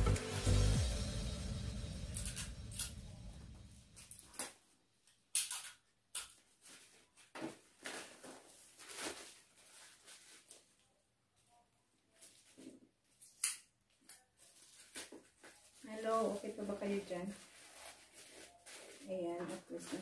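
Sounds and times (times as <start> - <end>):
background music: 0.0 - 3.8
wrapping paper rustling: 6.3 - 20.0.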